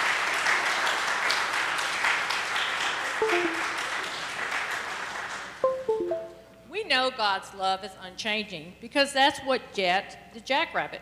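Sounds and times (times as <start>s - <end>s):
congregation applauding: 0.0s - 6.1s
short musical notes: 3.2s - 3.8s, 5.6s - 6.5s.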